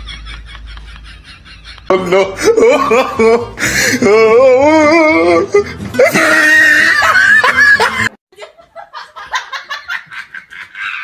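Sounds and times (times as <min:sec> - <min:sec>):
high-pitched laughing and squealing: 0:01.7 - 0:08.6.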